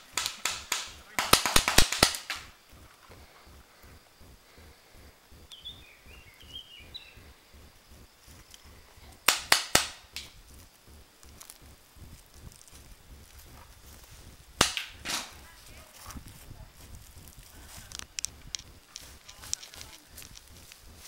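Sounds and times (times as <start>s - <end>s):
paintball marker sharp pops: 0.0s - 2.6s, 9.2s - 10.4s, 14.6s - 15.4s.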